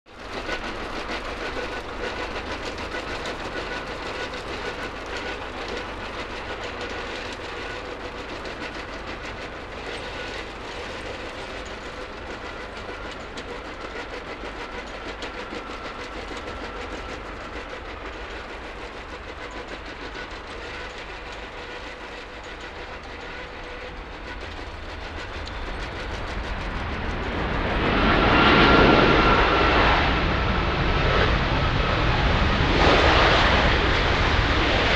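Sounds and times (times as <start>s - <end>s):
jet engines rushing and whining: 0.1s - 34.9s.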